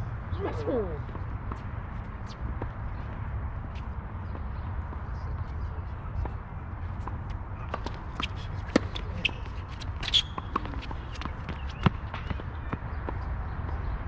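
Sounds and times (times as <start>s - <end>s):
footsteps on court: 0.5s - 14.0s
racket hitting ball: 7.7s - 12.4s.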